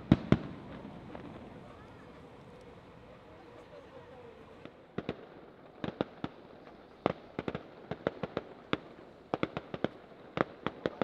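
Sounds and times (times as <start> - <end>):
distant fireworks bursting: 0.0 - 1.7.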